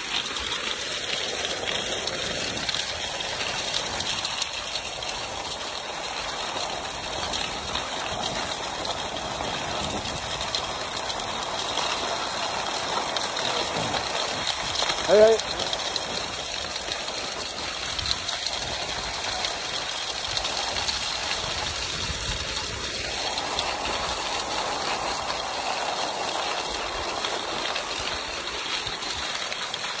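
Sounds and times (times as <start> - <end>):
skis scraping on snow track: 0.0 - 30.0
wind rumble on microphone: 1.4 - 29.8.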